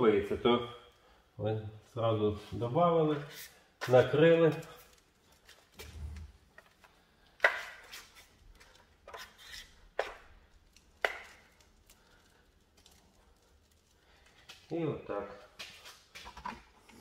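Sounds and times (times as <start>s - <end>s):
trowel scraping wet plaster: 7.4s - 10.3s.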